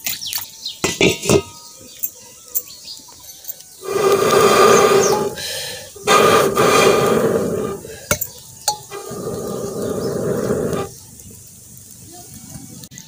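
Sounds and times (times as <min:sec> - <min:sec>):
breath blown through metal pipe: 0:03.8 - 0:08.2, 0:08.8 - 0:10.9.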